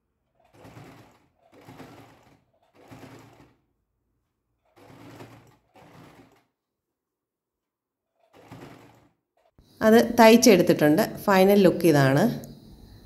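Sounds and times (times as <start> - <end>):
electric sewing machine stitching: 0.0 - 6.7, 8.1 - 10.1.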